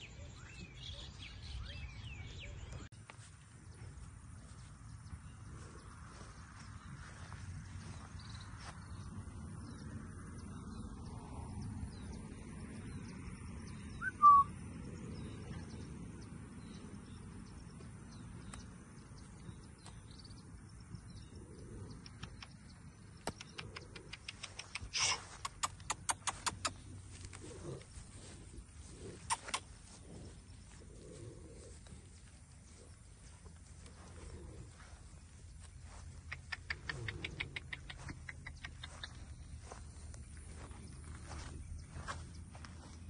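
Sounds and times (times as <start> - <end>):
bird chirping: 0.0 - 2.9, 3.6 - 43.0
steady low rumble: 1.2 - 43.0
sharp bird chips: 22.1 - 27.0, 29.1 - 29.8.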